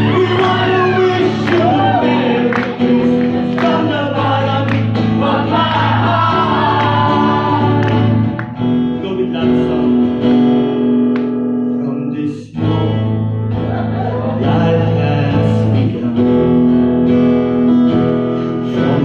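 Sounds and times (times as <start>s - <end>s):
man singing into microphone: 0.0s - 7.9s, 8.9s - 10.2s, 11.6s - 16.8s, 18.4s - 19.0s
acoustic guitar strumming: 0.0s - 19.0s.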